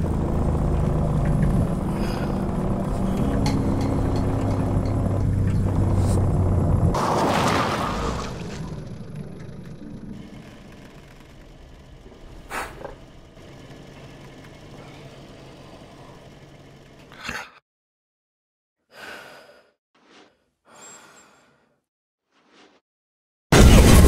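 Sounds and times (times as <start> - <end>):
low rumble with steady hum: 0.0 - 7.0
man breathing heavily: 1.8 - 2.7, 18.9 - 19.8.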